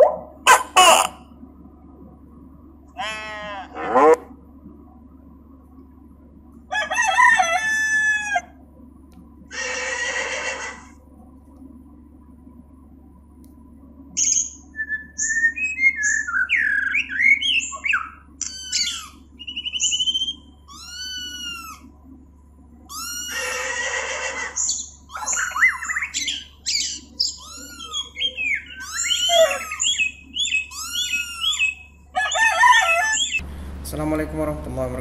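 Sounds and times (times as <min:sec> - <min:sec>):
faint low hum: 0:00.0 - 0:35.0
harsh bird squawk: 0:09.5 - 0:10.9, 0:16.0 - 0:21.9, 0:22.9 - 0:33.4
birds chirping and whistling: 0:14.2 - 0:21.8, 0:24.2 - 0:33.4.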